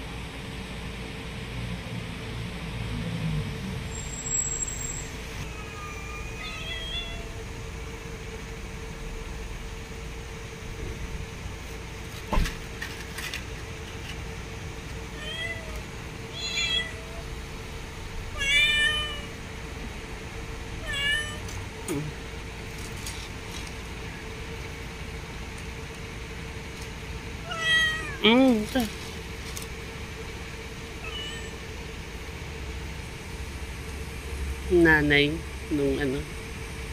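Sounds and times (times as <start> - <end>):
cat meowing: 5.5 - 7.4, 15.1 - 17.3, 18.4 - 19.3, 20.8 - 21.5, 27.4 - 28.2, 31.0 - 31.6.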